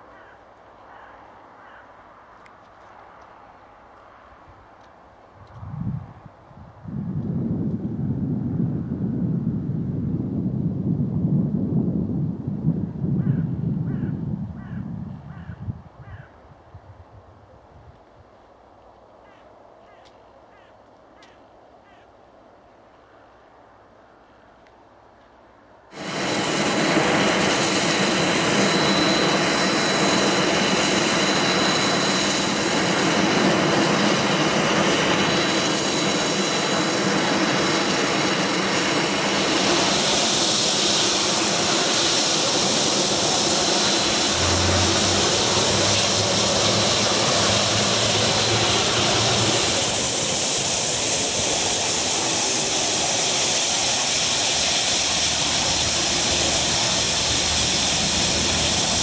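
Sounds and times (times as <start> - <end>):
jet airliner engine whine: 25.9 - 59.0
low hum: 41.3 - 52.2.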